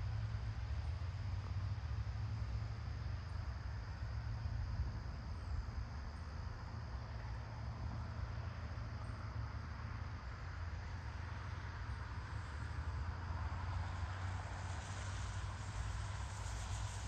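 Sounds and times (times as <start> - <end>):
constant low rumble: 0.0 - 17.0
rain hiss: 9.6 - 17.0.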